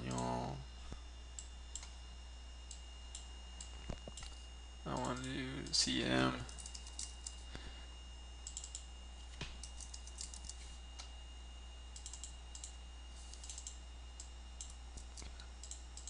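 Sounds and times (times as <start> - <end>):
steady low hum: 0.0 - 16.0
typing on computer keyboard: 6.5 - 7.4, 9.6 - 10.6, 12.0 - 12.7, 13.3 - 13.8.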